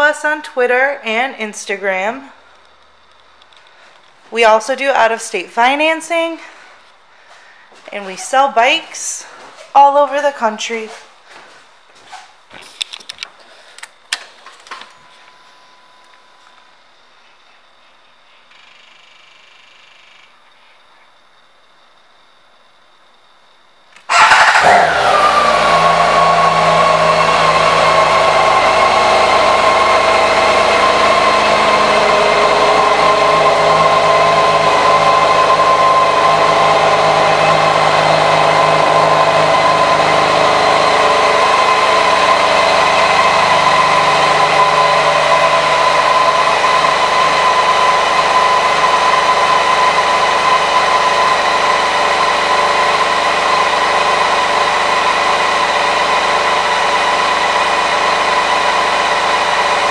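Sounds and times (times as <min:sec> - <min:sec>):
motorcycle engine starting and idling: 0:24.0 - 0:59.9.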